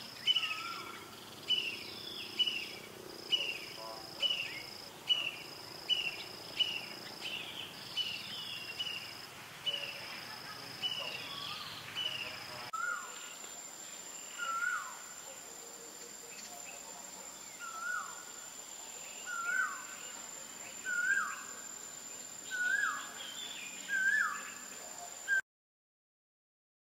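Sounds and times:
high insect buzz with chirps: 0:00.0 - 0:25.4
high insect whine: 0:00.0 - 0:25.4.

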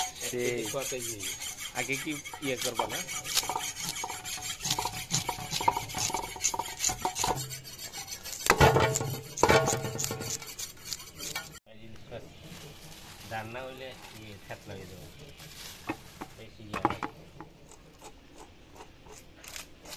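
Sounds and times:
fish scaler scraping scales: 0:00.0 - 0:11.6.

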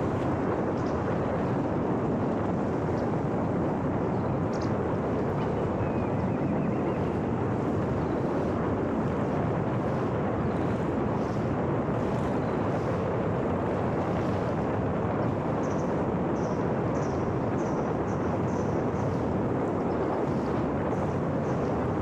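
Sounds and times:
wind rush: 0:00.0 - 0:22.0.

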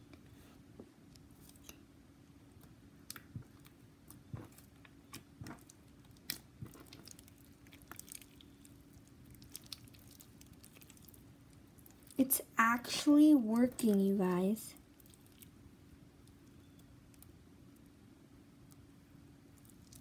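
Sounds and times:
slime squishing and popping: 0:02.6 - 0:12.2.

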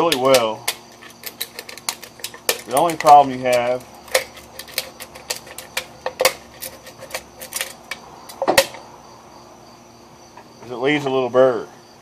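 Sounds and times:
can opener clicking: 0:00.0 - 0:08.7.

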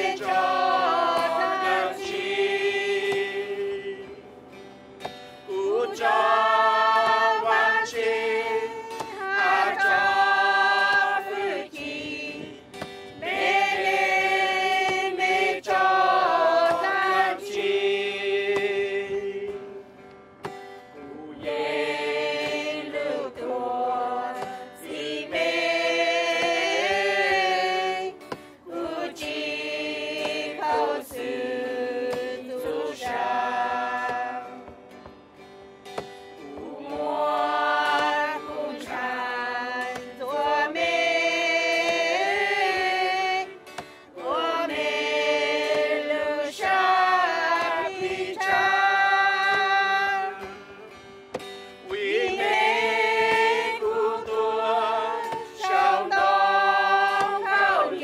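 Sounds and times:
group singing a hymn: 0:00.0 - 0:58.0.

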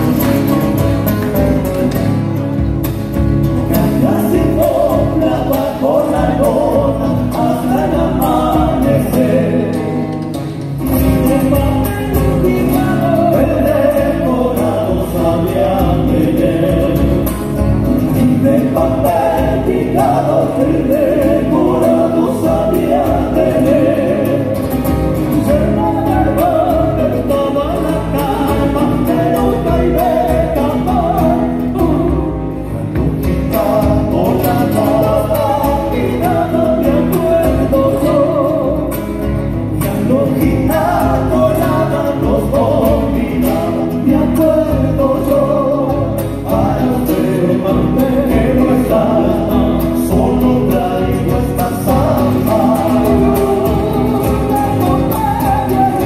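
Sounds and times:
strummed acoustic guitars: 0:00.0 - 0:56.0
group singing in harmony: 0:03.7 - 0:10.2, 0:11.0 - 0:56.0
bass drum: 0:24.9 - 0:37.8.

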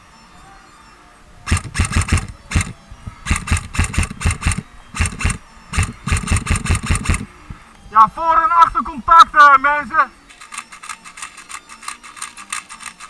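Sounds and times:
airsoft rifle firing bursts: 0:01.5 - 0:07.3.

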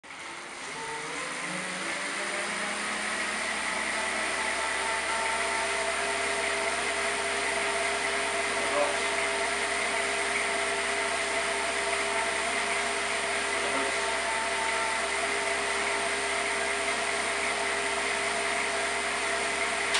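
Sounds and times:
turbo trainer whirring: 0:00.1 - 0:19.9.

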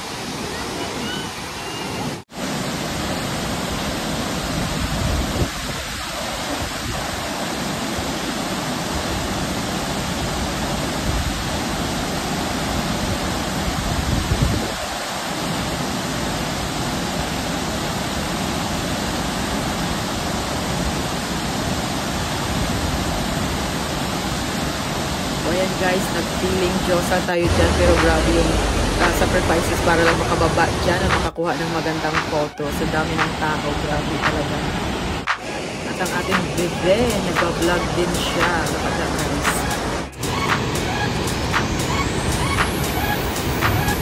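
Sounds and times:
waterfall rushing: 0:00.0 - 0:44.0
low rumbles: 0:27.5 - 0:31.4.

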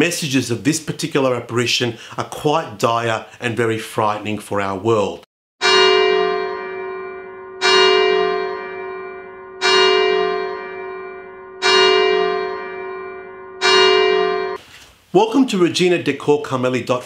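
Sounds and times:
church bell tolling: 0:05.6 - 0:14.6.

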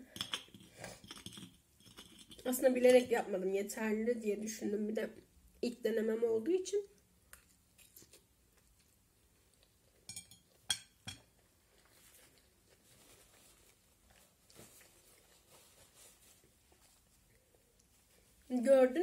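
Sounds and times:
chewing food: 0:06.9 - 0:15.7
paper napkin rustling: 0:11.9 - 0:17.3.

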